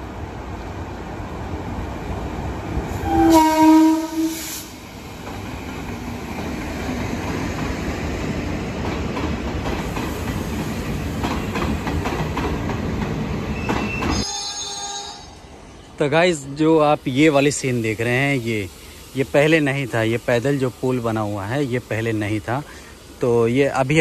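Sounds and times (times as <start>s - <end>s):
locomotive horn blast: 3.0s - 4.7s
train wheels clacking over rail joints: 8.7s - 14.2s
high wheel squeal: 13.5s - 15.5s.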